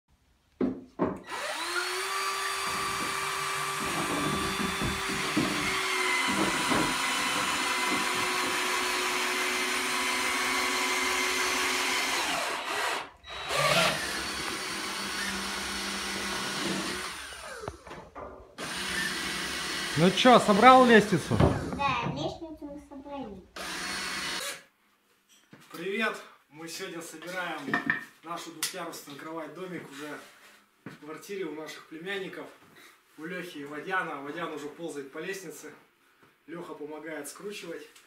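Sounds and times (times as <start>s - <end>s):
drill motor whining: 1.2s - 17.8s, 18.6s - 21.8s, 23.6s - 24.6s
knocks: 2.6s - 8.6s.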